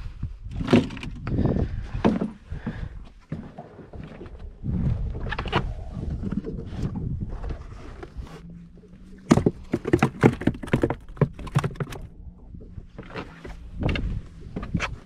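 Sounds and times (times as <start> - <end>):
fish flapping against cooler walls: 9.2 - 12.1.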